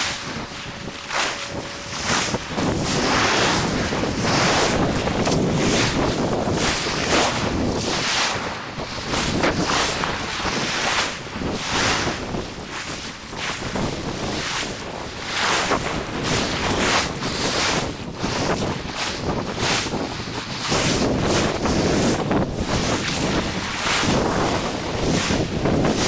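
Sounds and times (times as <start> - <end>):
surf breaking on shore: 0.0 - 26.0
wind gusting across microphone: 0.0 - 26.0.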